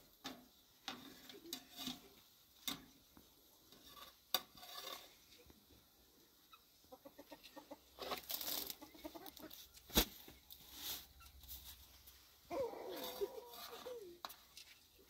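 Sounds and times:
chickens clucking: 6.4 - 9.8, 12.5 - 14.2
flatbread rustling: 8.0 - 15.0.

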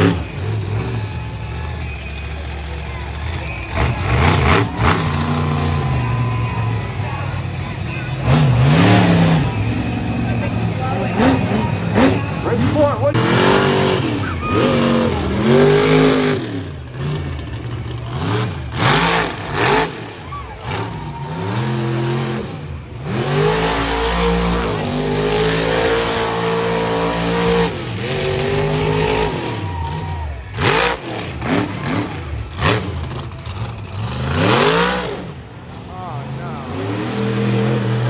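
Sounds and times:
monster truck engine revving: 0.0 - 38.0.

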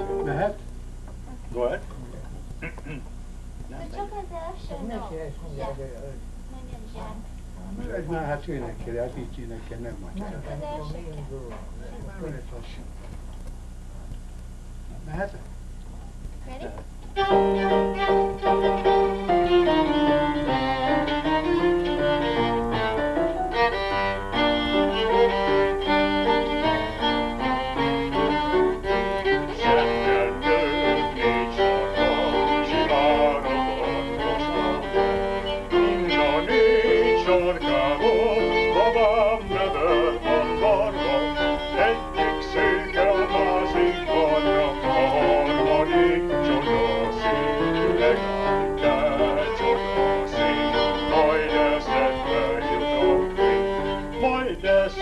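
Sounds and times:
keyboard accompaniment: 0.0 - 0.7, 17.1 - 55.0
violin playing folk melody: 17.1 - 55.0.

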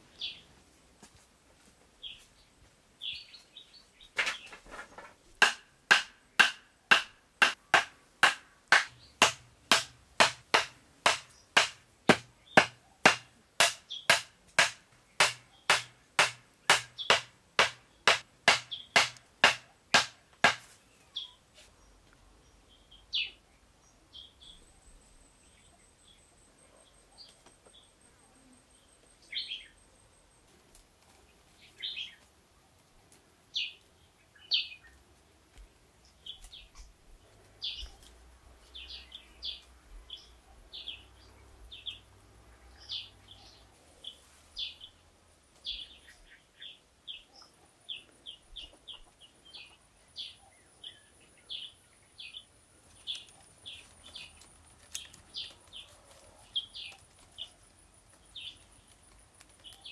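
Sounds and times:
wooden stakes pounded into sand: 4.2 - 20.9.

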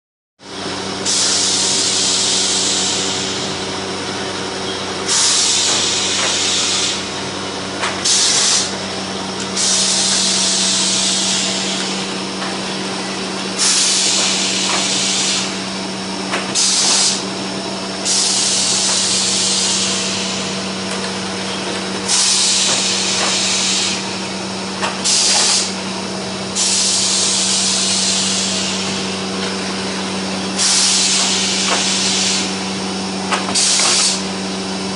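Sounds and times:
air hissing bursts: 1.0 - 3.6, 5.0 - 7.2, 7.8 - 15.7, 16.3 - 17.3, 18.0 - 20.8, 22.0 - 24.2, 24.8 - 32.6, 33.3 - 34.4.

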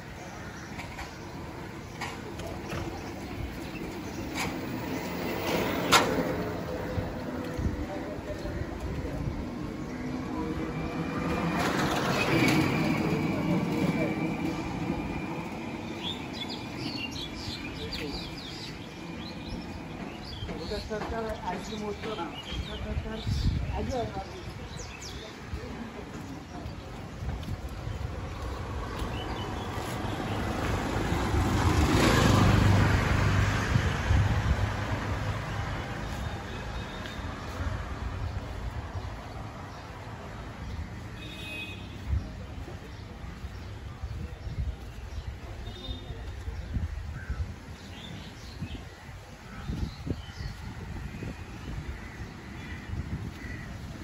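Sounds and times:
birds chirping: 0.0 - 32.6
vehicle passing close by: 29.4 - 36.1.

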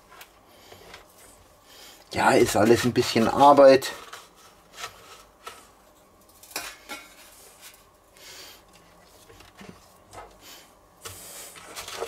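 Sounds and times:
scraping rustle in breadcrumbs: 2.2 - 5.8, 8.8 - 12.0.

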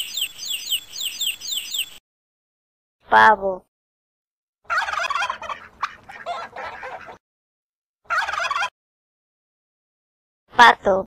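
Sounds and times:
turkey gobbling: 4.7 - 7.2, 8.1 - 8.7.

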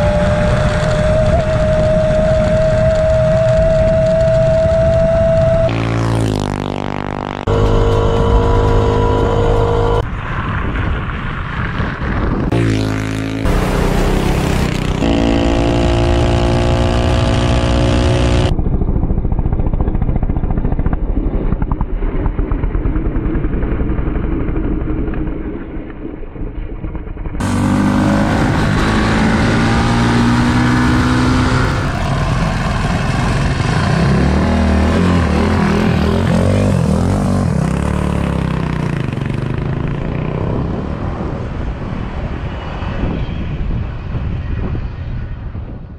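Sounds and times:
small gas engines revving past: 5.6 - 10.0, 12.5 - 18.5, 27.4 - 41.1.

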